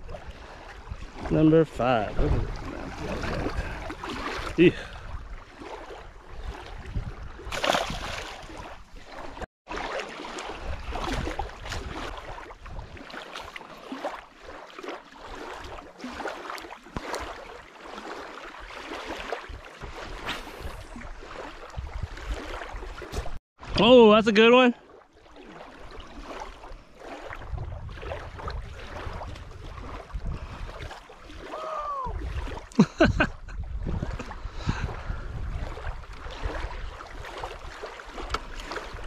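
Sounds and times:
wind buffeting the microphone: 0.0 - 9.4, 10.5 - 13.1, 19.5 - 23.4, 27.2 - 39.0
small waves lapping at shore: 0.0 - 39.0.

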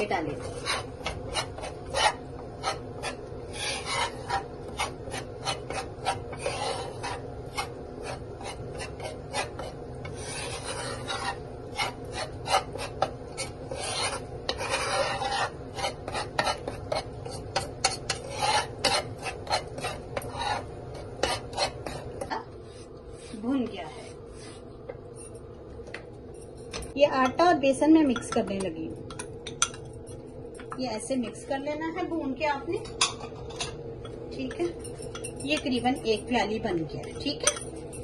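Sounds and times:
metal spatula scraping flour in pan: 0.0 - 25.3.

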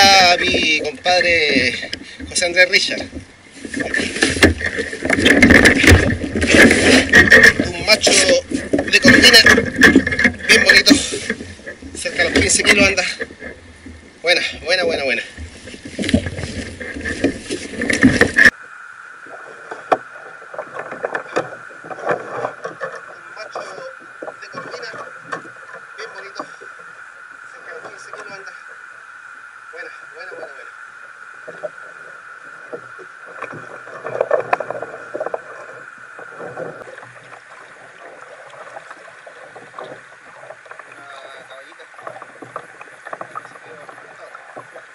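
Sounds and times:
knocks and clunks on a kayak: 0.0 - 18.6, 19.6 - 27.0, 27.6 - 28.8, 31.4 - 44.9
steady high hum: 0.0 - 44.9
steady hiss: 0.0 - 44.9
knocks aboard a kayak: 3.1 - 10.4.

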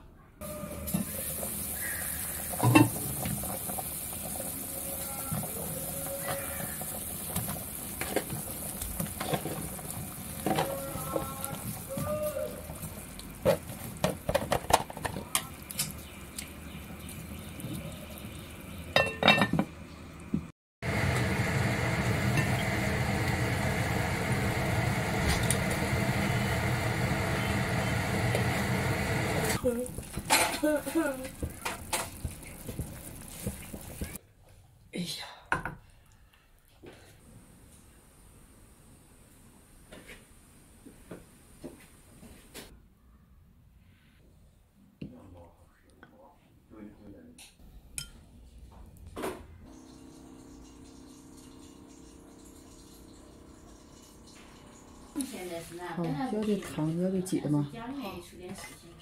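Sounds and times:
soup bubbling hard: 20.8 - 34.2.

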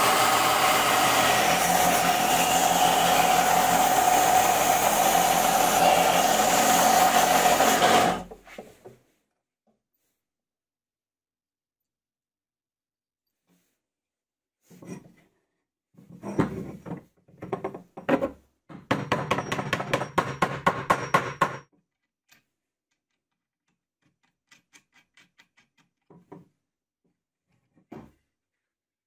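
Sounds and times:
wood and metal knocks and clicks: 16.2 - 21.6.

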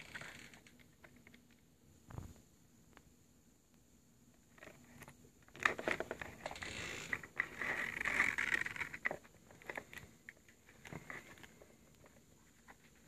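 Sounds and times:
metal zip being pulled open: 6.4 - 9.0.

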